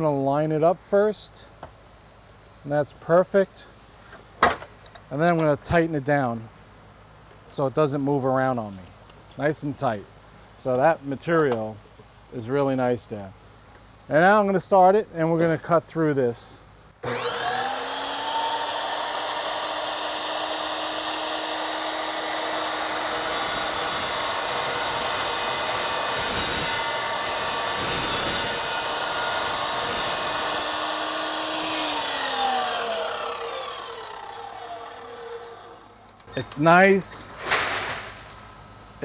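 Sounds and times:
chop saw motor whine: 17.0 - 36.3
saw blade cutting steel rod: 18.2 - 36.0.

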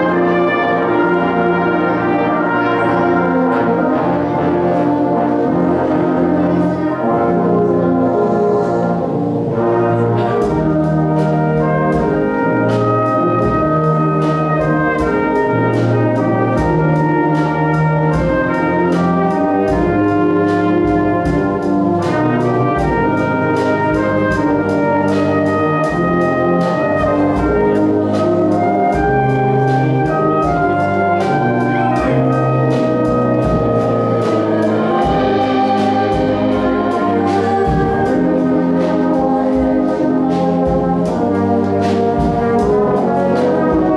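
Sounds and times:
brass band playing chords: 0.0 - 43.9
drum kit beat: 9.1 - 43.9.

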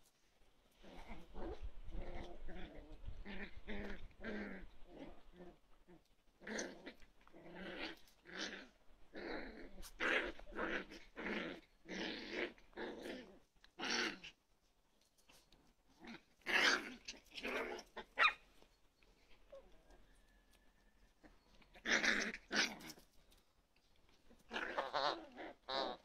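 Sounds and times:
puppies growling and yipping: 0.8 - 14.4, 15.3 - 26.0.

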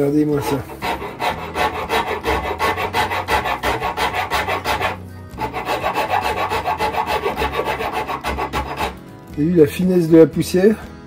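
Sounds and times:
hand rasp on wood: 0.3 - 9.1.

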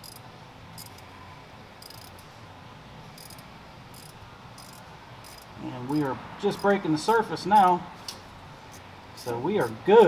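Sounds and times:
ratchet clicking: 0.0 - 0.2, 0.8 - 1.0, 1.8 - 2.2, 3.2 - 6.8.

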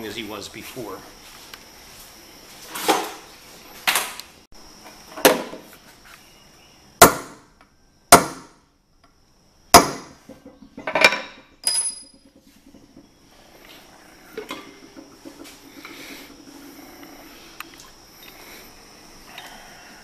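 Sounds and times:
hammer striking metal punch: 7.0 - 7.4, 8.1 - 8.6, 9.7 - 10.1.

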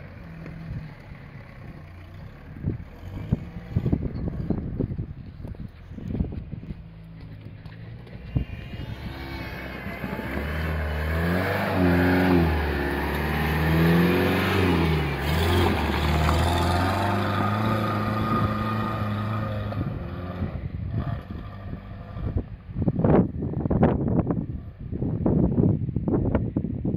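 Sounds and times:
pickup truck engine revving: 8.6 - 20.5.

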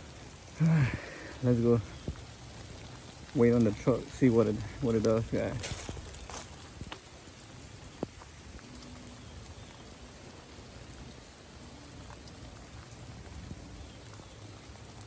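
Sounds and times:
light rain hissing: 0.0 - 15.0
raindrops ticking: 0.0 - 15.0.

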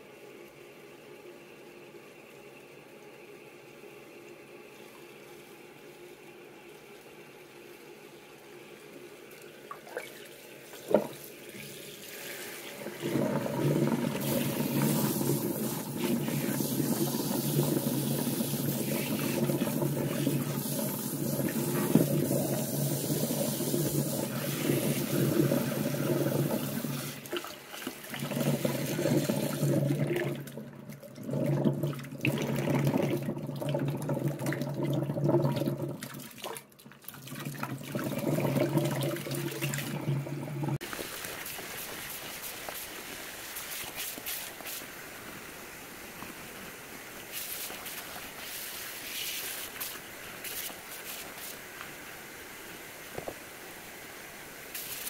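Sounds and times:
running water pouring into sink: 9.7 - 44.8.

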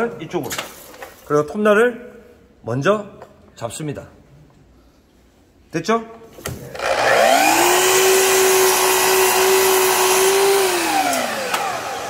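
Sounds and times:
miter saw motor whining: 6.8 - 12.0
saw blade cutting wood: 6.8 - 12.0.

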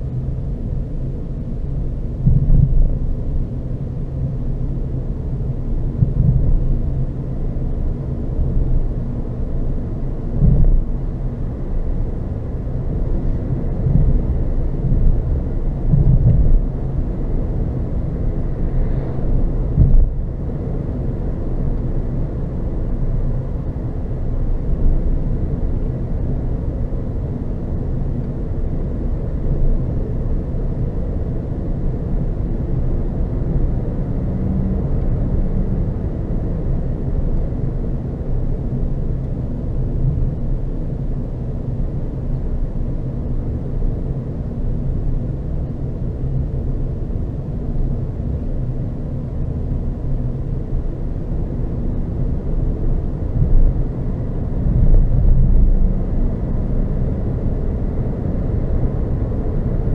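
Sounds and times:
tyre and wind rumble: 12.8 - 22.2, 52.3 - 59.9.

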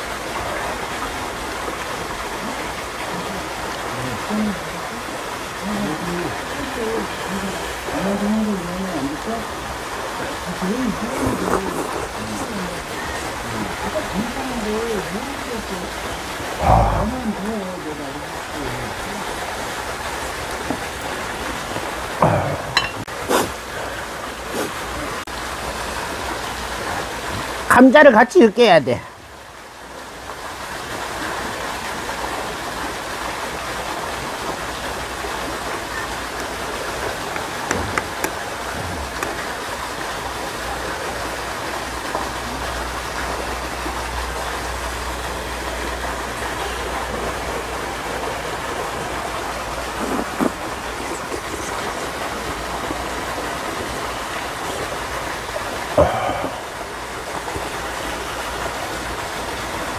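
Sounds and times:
rushing water: 0.0 - 59.9
metal spoon clinking on bowl: 22.8 - 23.0.

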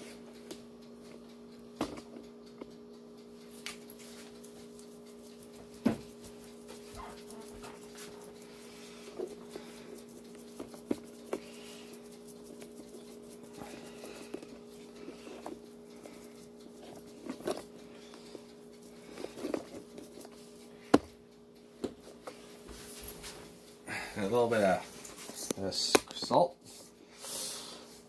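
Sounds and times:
low two-tone hum: 0.0 - 24.2.

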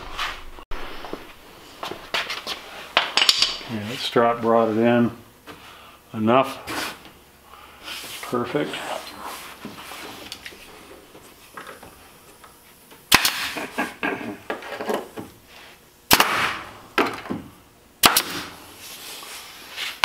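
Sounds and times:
air stapler firing: 13.1 - 13.6, 16.1 - 17.1, 18.0 - 18.6.

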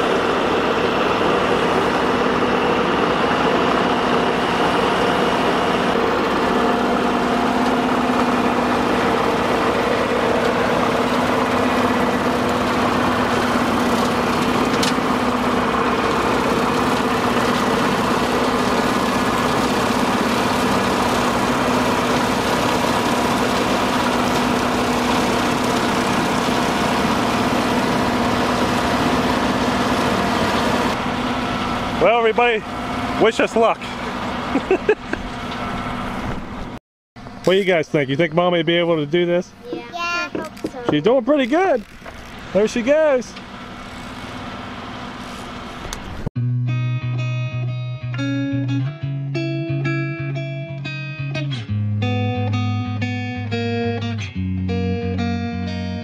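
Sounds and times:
rotary cutter cutting grass: 0.0 - 36.5, 39.2 - 46.3
diesel tractor running: 0.0 - 46.3.

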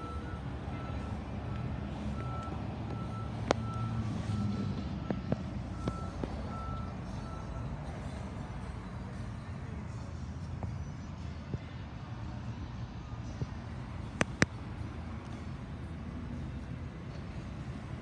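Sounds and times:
vehicle reversing alarm beeping: 0.0 - 9.3
low engine rumble: 0.0 - 18.0.

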